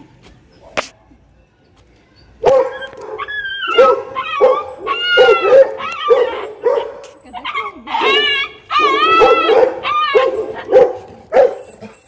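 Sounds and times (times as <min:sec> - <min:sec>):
dog barking and yelping: 0:02.4 - 0:11.8.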